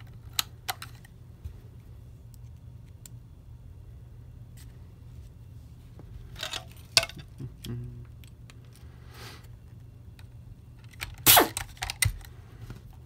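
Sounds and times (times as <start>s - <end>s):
plastic parts clicking and knocking: 6.4s - 7.4s, 10.2s - 12.3s.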